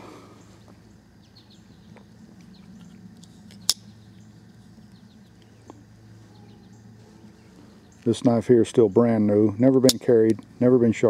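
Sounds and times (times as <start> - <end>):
faint chirps: 0.0 - 8.2
faint steady hum: 0.0 - 11.0.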